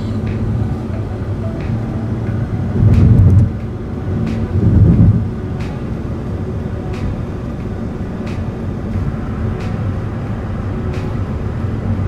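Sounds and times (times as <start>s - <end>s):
tyre and engine rumble: 0.0s - 12.0s.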